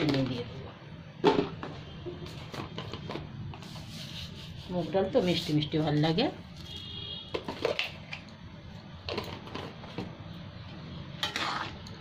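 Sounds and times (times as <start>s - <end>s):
metal ladle scraping a pan: 11.2s - 12.0s.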